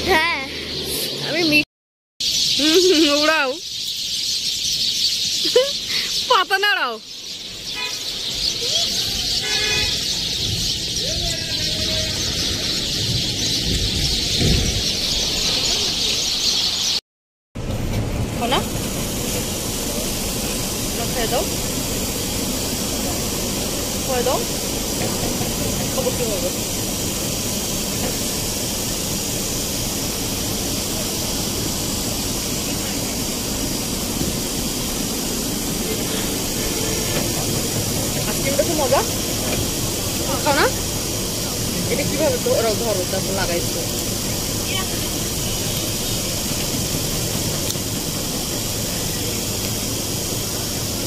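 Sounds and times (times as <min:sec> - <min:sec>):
bus engine and road rumble: 0:00.0 - 0:01.6, 0:02.6 - 0:03.6, 0:07.8 - 0:17.0, 0:17.6 - 0:51.0
flock of birds chirping: 0:00.0 - 0:01.6, 0:02.2 - 0:17.0, 0:18.4 - 0:51.0
high hiss: 0:17.6 - 0:51.0.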